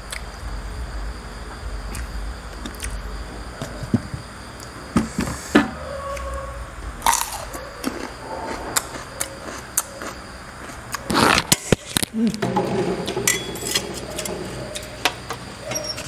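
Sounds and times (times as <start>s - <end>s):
dishes clinking: 12.4s - 15.0s.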